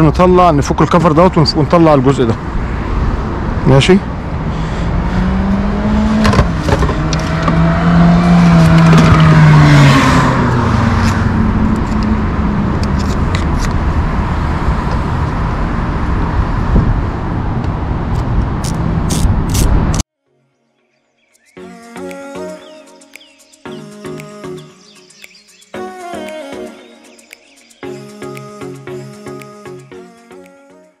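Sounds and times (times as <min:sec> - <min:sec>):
car passing by: 0:02.3 - 0:12.8.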